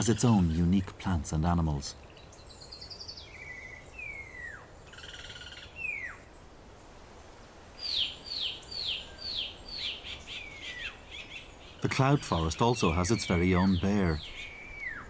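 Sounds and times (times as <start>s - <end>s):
forest birds calling: 0.0s - 6.8s, 7.6s - 15.0s
buzzy bird trill: 7.8s - 15.0s
sharp down-slurred bird notes: 7.8s - 15.0s.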